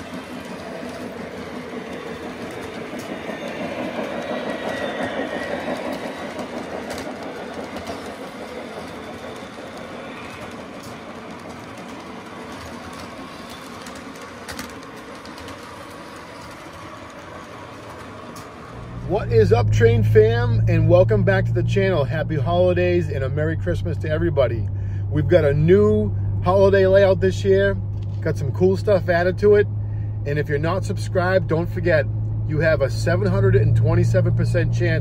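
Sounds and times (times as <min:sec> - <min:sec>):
model train wheels clattering: 0:00.0 - 0:18.8.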